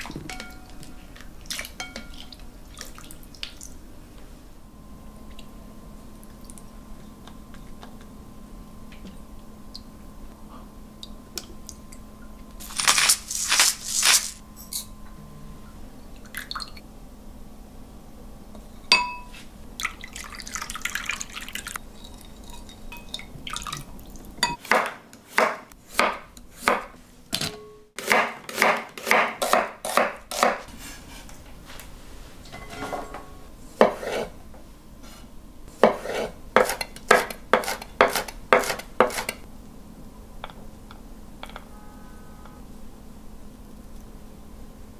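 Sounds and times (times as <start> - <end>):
glass bowl clink: 0.3 - 0.9, 1.8 - 2.2, 18.9 - 19.3, 21.9 - 23.3, 32.5 - 33.4
stirring knocks and clinks: 0.3 - 0.9.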